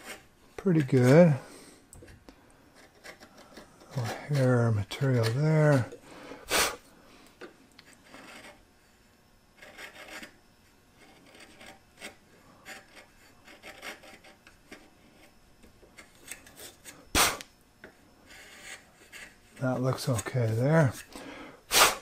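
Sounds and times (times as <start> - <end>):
chisel scraping wood: 0.0 - 1.4, 2.7 - 6.0, 7.8 - 8.7, 9.5 - 10.4, 11.0 - 17.1, 18.2 - 21.4.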